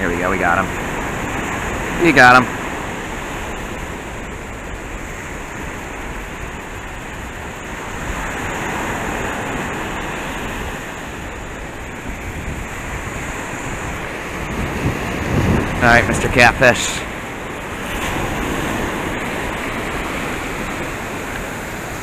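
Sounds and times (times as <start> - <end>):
surf washing on beach: 0.0 - 22.0
wind on microphone: 0.0 - 22.0.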